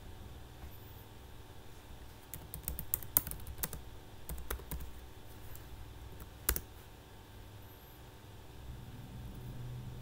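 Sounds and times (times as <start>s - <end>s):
keyboard typing: 2.3s - 5.0s, 6.2s - 6.7s.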